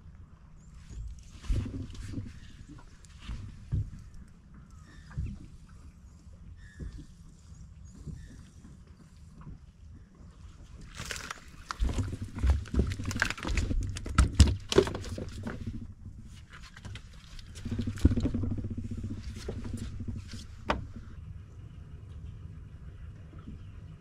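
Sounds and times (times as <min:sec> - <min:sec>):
low rumbling noise: 0:00.0 - 0:08.6, 0:09.2 - 0:24.0.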